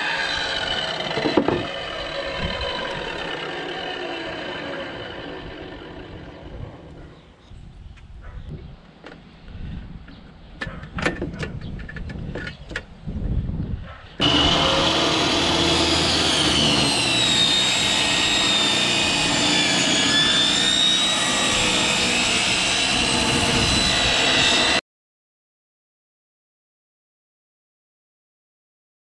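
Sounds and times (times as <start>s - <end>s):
table saw cutting wood: 0.0s - 7.0s, 14.2s - 24.8s
handling clicks and knocks: 10.1s - 12.9s.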